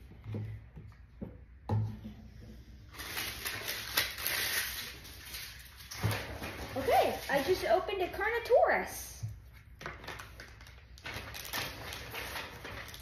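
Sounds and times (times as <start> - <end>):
plastic packaging crinkling: 2.9 - 8.4, 9.6 - 13.0.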